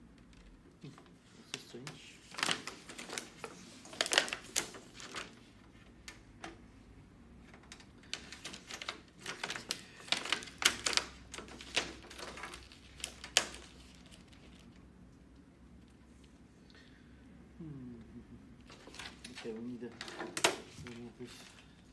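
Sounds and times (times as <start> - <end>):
plastic sheet crinkling: 0.8 - 6.6, 7.4 - 14.9.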